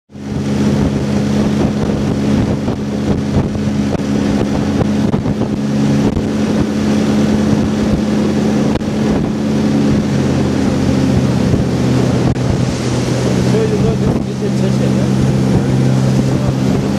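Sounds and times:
outboard motor droning: 0:00.1 - 0:16.9
wind buffeting microphone: 0:00.1 - 0:16.9.

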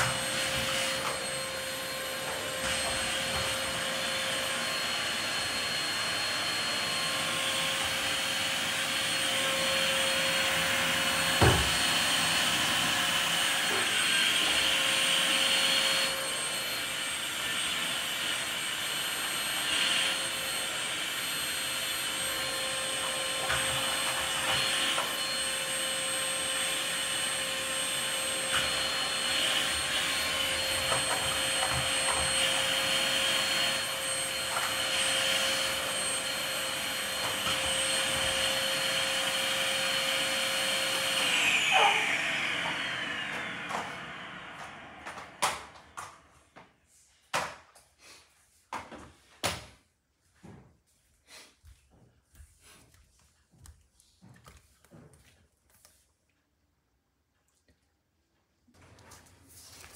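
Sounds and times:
vacuum motor winding down: 0:00.0 - 0:46.1
vacuum cleaner whining: 0:00.0 - 0:48.2.

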